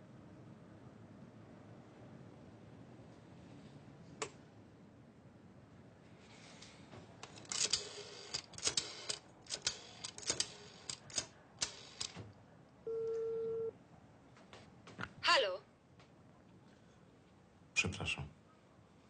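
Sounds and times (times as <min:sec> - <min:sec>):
telephone line tone beep: 0:12.9 - 0:13.7.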